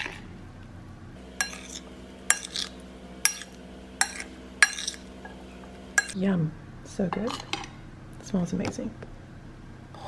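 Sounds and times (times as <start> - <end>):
spoon clinking ceramic bowl: 1.4 - 5.4, 6.0 - 6.2.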